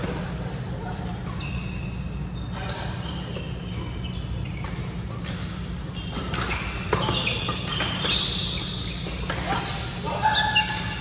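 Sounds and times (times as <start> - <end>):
low hum in hall: 0.0 - 11.0
shoe squeaks on court: 1.2 - 5.2, 5.8 - 9.3
racket hitting shuttlecock: 4.5 - 10.0.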